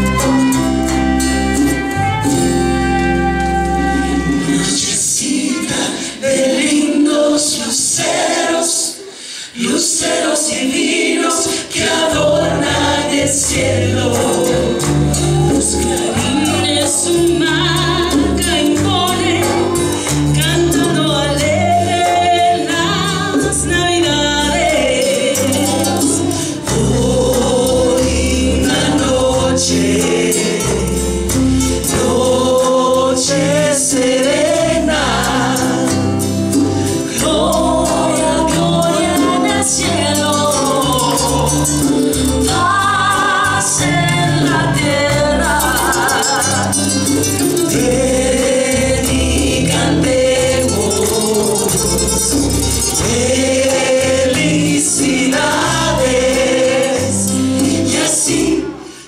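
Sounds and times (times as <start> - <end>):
low bass notes: 0.0 - 4.9, 12.2 - 58.8
acoustic guitar: 0.0 - 59.0
vocal group singing in parts: 0.0 - 59.0
hand drums: 12.3 - 58.6.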